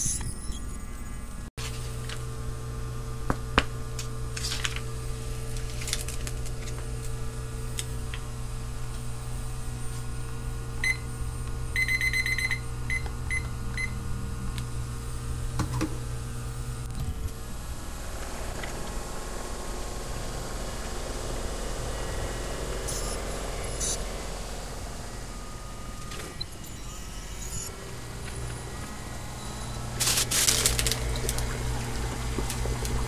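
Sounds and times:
induction hob humming: 0:00.6 - 0:33.0
food pouch rustling: 0:05.6 - 0:06.8, 0:30.0 - 0:31.5
kitchen timer beeping: 0:11.8 - 0:14.0.

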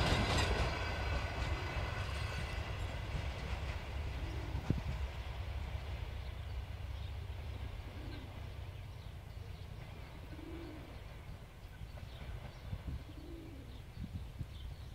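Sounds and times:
diesel train rumble: 0:00.0 - 0:14.9
dove cooing: 0:04.2 - 0:04.8, 0:07.8 - 0:08.5, 0:10.2 - 0:11.0, 0:12.9 - 0:13.9.

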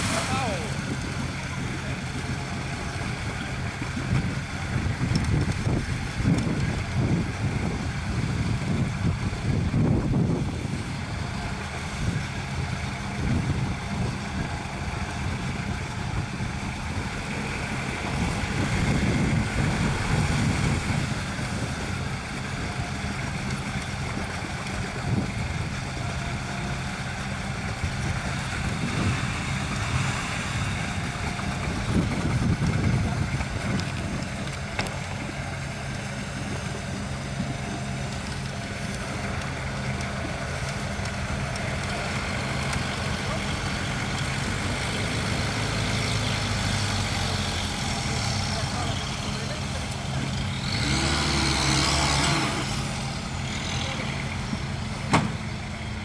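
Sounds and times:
water sloshing around wheels: 0:00.0 - 0:06.2
engine pulling under load: 0:00.0 - 0:56.0.

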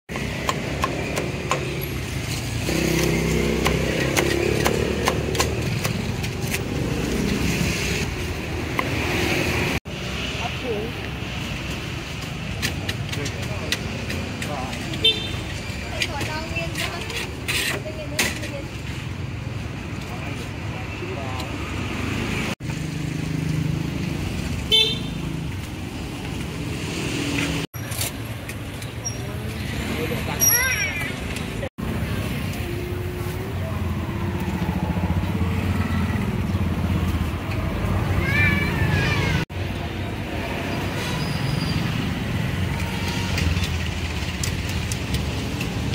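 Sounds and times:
street noise: 0:00.1 - 0:45.9
meat cleaver chopping on wood: 0:03.0 - 0:06.1.

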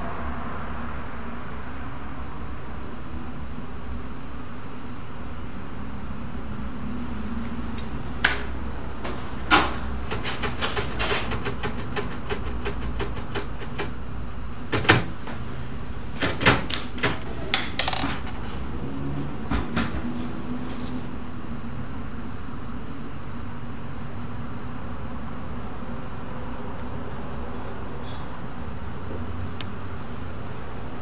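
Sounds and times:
steady low hum: 0:00.0 - 0:31.0
typewriter key clacks: 0:09.1 - 0:14.0, 0:16.2 - 0:18.4.

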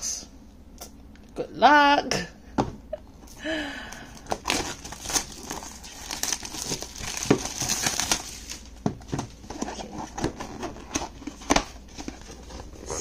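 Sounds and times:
plastic wrap tearing and crinkling: 0:04.2 - 0:08.8.

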